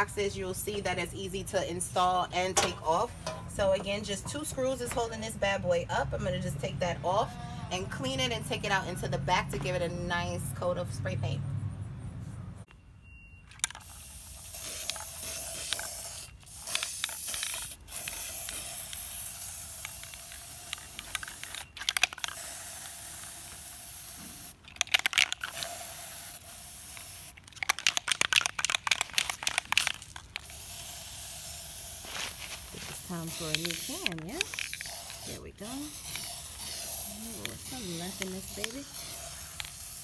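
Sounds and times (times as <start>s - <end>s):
mixing ball rattling in can: 13.5s - 40.0s
spray paint can hissing: 13.6s - 40.0s.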